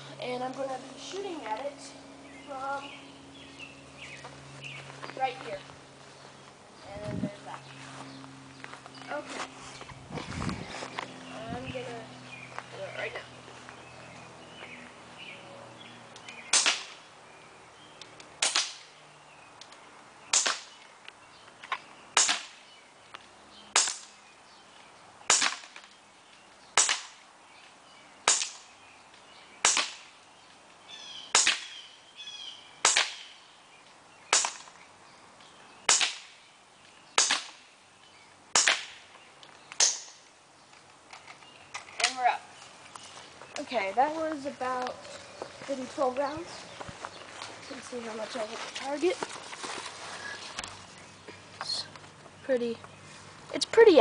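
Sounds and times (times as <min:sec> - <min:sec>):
airsoft pistol shots: 0:16.5 - 0:17.0, 0:18.4 - 0:18.8, 0:20.3 - 0:20.8, 0:22.2 - 0:22.6, 0:23.8 - 0:24.1, 0:25.3 - 0:25.8, 0:26.8 - 0:27.2, 0:28.2 - 0:28.6, 0:29.6 - 0:30.1, 0:31.3 - 0:31.8, 0:32.8 - 0:33.3, 0:34.3 - 0:34.7, 0:35.9 - 0:36.4, 0:37.2 - 0:37.6, 0:38.5 - 0:39.0.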